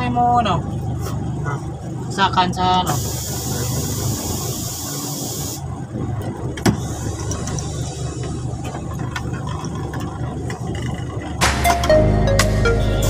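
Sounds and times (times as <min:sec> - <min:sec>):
diesel truck engine idling: 0:00.0 - 0:13.0
air hiss: 0:02.9 - 0:05.6.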